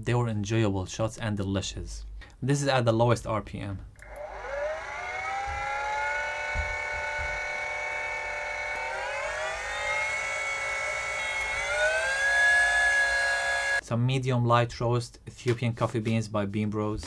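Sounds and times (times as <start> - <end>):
coffee grinder motor whine: 4.0 - 13.8.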